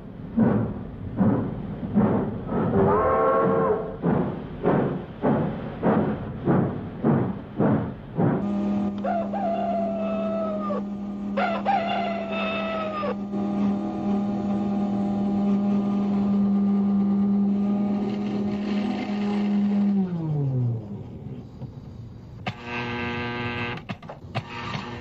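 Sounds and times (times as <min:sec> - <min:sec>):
electric motor hum: 0:08.2 - 0:21.3, 0:22.4 - 0:25.0
toy train whistle: 0:08.5 - 0:15.9.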